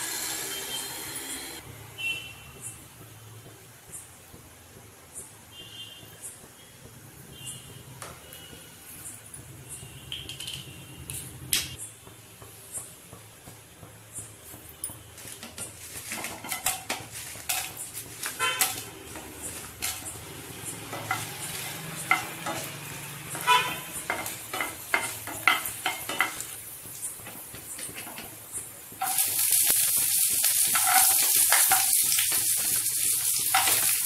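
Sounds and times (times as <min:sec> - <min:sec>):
chillies sizzling in oil: 0:15.0 - 0:34.0.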